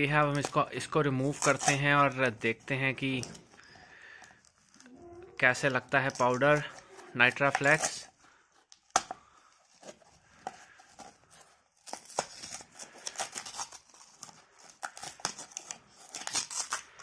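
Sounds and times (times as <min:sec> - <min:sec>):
foil seal crackling and tearing: 0:11.7 - 0:17.0.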